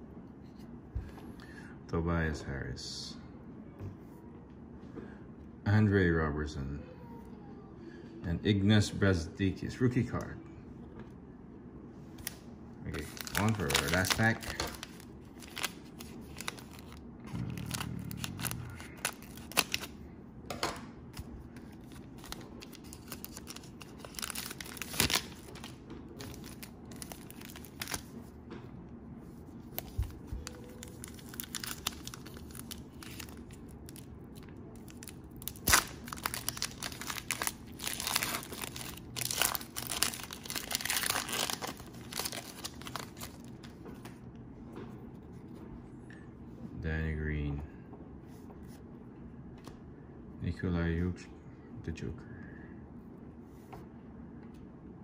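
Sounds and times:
cellophane wrapper tearing and crinkling: 12.2s - 20.0s, 21.8s - 28.1s, 29.7s - 43.6s.

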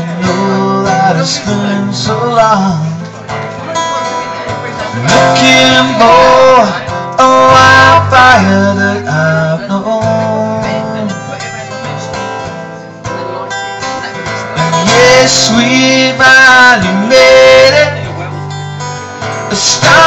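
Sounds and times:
acoustic guitars strumming: 0.0s - 20.0s
person singing with vibrato: 4.9s - 11.2s, 14.6s - 18.3s, 19.4s - 20.0s.

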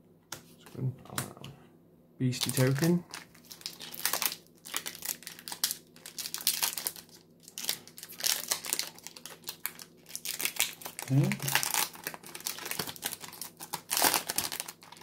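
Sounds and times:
foil wrappers crinkling and tearing: 2.4s - 15.0s.

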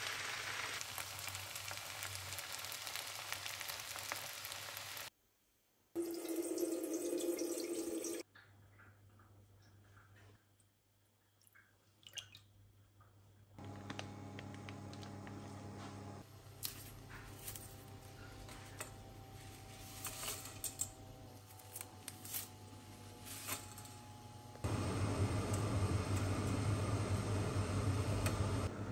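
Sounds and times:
small drips and clicks: 8.2s - 15.4s
electric hum: 13.6s - 28.9s
noodles rustling into a metal pan: 16.4s - 24.0s.

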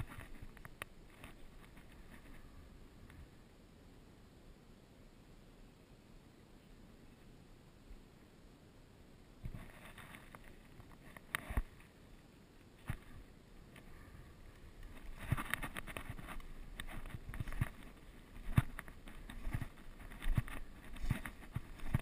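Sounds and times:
brush rustling: 0.0s - 2.6s, 12.8s - 22.0s.

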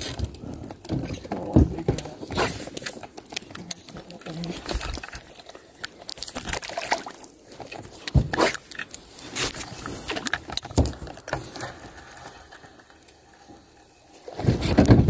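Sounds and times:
fishing reel ticking and rattling: 2.8s - 7.3s.

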